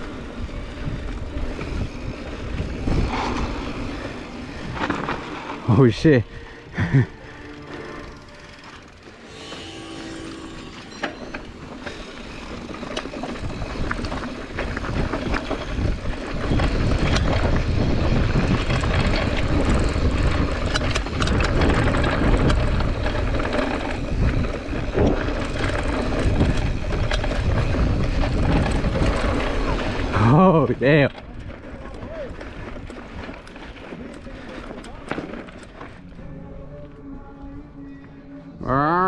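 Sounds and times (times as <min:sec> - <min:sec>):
wind buffeting microphone: 0:00.0 - 0:06.6, 0:12.0 - 0:35.1
tyres rumbling over dirt: 0:00.0 - 0:36.2
bike rattles and clicks: 0:00.0 - 0:36.4.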